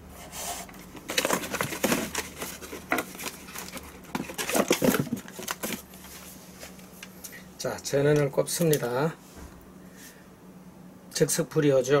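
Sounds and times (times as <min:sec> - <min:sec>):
plastic chargers and cords handled: 0:00.6 - 0:07.1.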